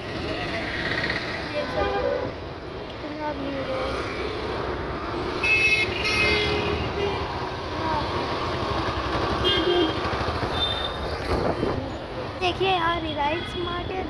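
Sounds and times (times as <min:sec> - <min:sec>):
road traffic rumble: 0:00.0 - 0:14.0
vehicle horns honking: 0:05.4 - 0:07.3, 0:09.4 - 0:11.1.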